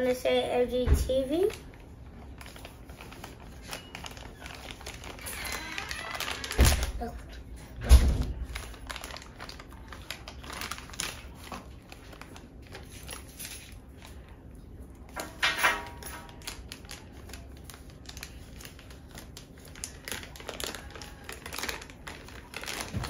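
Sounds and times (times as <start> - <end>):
tissue paper crinkling: 1.4 - 7.2, 8.2 - 14.4, 16.0 - 23.0.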